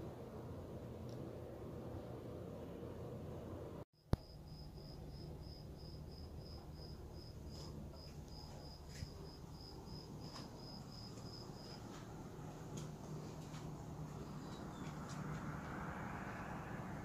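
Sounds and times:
low steady hum: 0.0s - 17.0s
cricket chirping: 4.0s - 12.1s.

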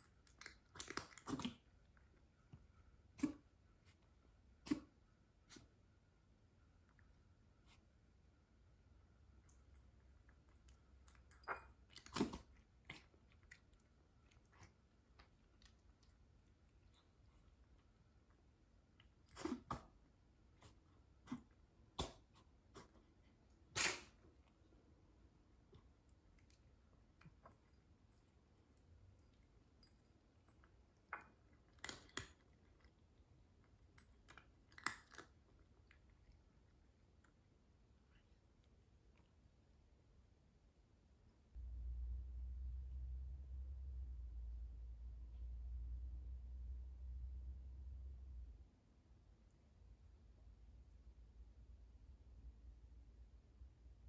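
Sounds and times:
cat crunching dry kibble: 0.2s - 2.2s, 27.6s - 36.9s.

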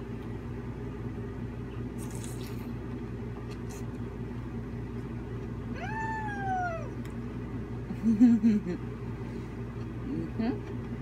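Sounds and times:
steady low room hum: 0.0s - 11.0s
cat meowing: 5.7s - 7.0s.

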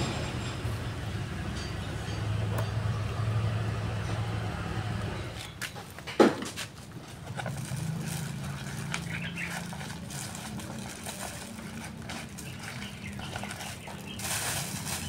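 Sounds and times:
low hum: 0.0s - 5.4s.

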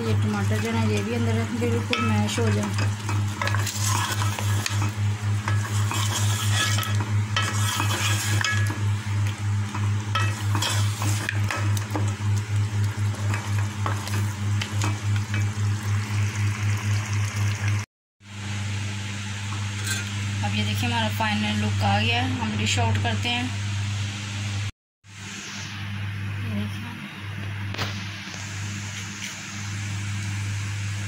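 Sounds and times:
gravy sizzling: 0.0s - 17.9s
spoon stirring and scraping pot: 0.2s - 12.2s, 13.0s - 15.6s.

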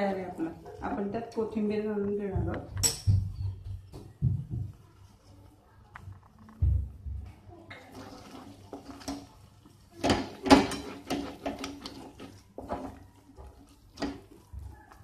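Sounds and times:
wooden spatula scraping a pan: 7.7s - 15.0s.

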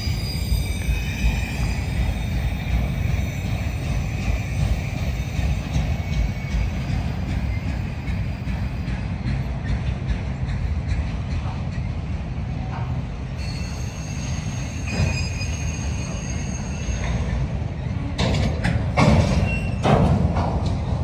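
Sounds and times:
high wheel squeal: 0.0s - 8.9s, 13.4s - 18.0s, 19.3s - 19.9s
train wheels rumbling on rail: 0.0s - 21.0s.

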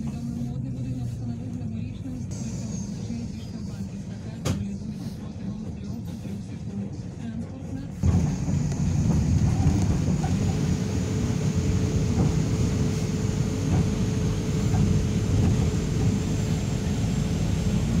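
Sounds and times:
tram wheels rumbling on rail: 0.0s - 18.0s
steady hum: 8.0s - 18.0s.

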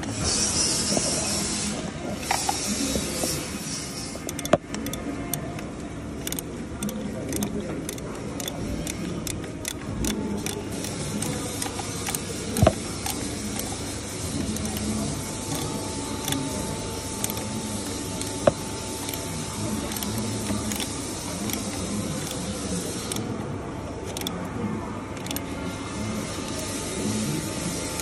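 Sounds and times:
hand ratchet clicking: 4.1s - 23.2s, 24.1s - 24.4s, 25.2s - 25.5s.

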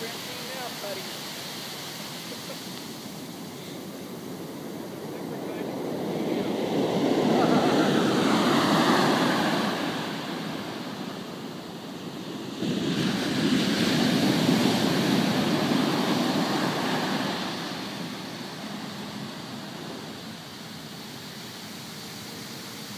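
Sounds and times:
waves breaking on sand: 0.0s - 22.9s.

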